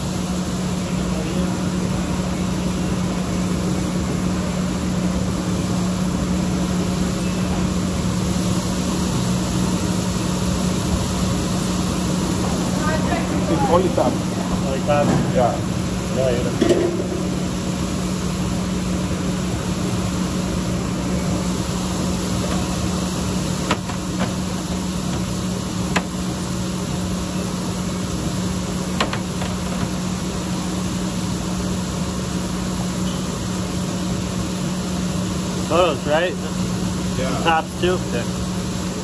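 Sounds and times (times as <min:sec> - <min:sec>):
low mechanical hum: 0:00.0 - 0:39.0.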